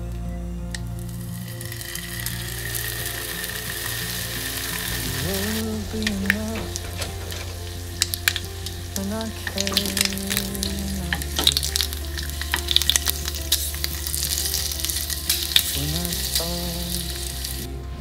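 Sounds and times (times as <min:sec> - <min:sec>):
bacon sizzling and popping: 0:00.7 - 0:17.7.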